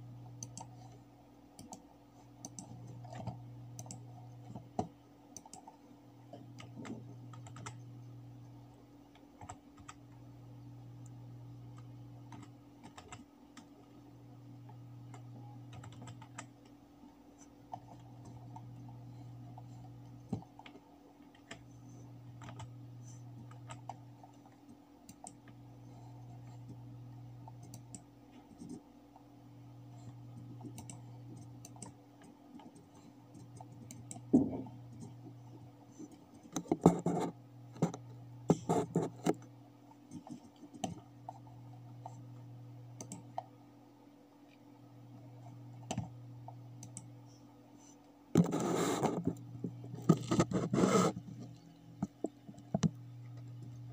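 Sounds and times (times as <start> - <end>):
faint low hum: 0.0 - 53.9
keyboard typing: 0.2 - 8.0, 9.1 - 10.2, 11.0 - 13.8, 14.6 - 26.8, 27.4 - 28.8, 29.9 - 42.2, 43.0 - 43.5, 46.8 - 47.1
mouse clicks: 0.4 - 0.7.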